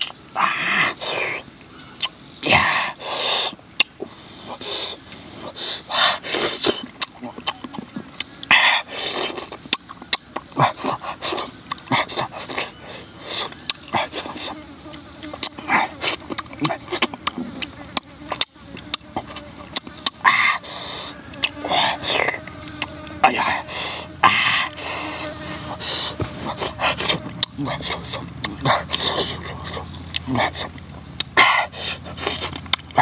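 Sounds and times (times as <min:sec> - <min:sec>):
high insect trill: 0:00.0 - 0:33.0
person chewing and lip-smacking: 0:02.0 - 0:02.2, 0:03.7 - 0:04.0, 0:06.3 - 0:20.3, 0:21.3 - 0:23.1, 0:25.2 - 0:33.0.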